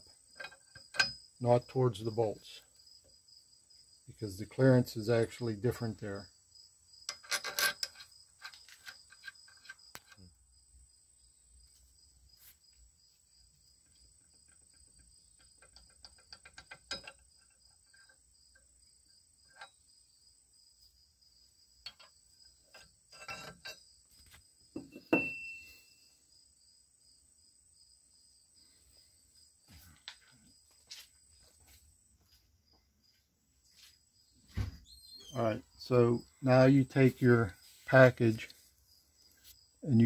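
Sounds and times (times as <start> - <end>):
metal clicks and clinks: 0.3 - 1.3, 7.0 - 10.2, 13.8 - 18.7, 21.8 - 23.9
metal knocks ringing: 24.8 - 25.8.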